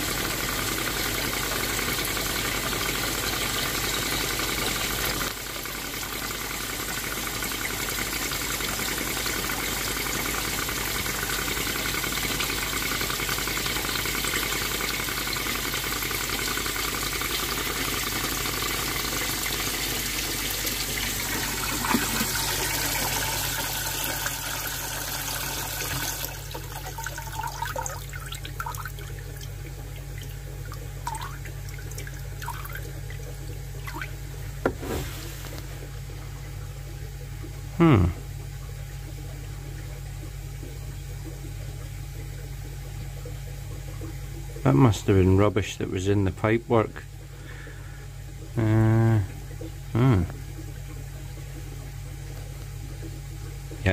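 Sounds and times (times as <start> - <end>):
water rushing through waste pipe: 0.0 - 37.0
pond pump humming: 0.0 - 53.9.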